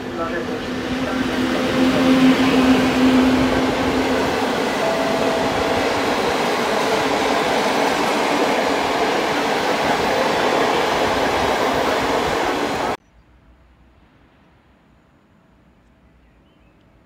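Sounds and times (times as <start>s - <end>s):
train wheels rolling on rails: 0.0s - 13.0s.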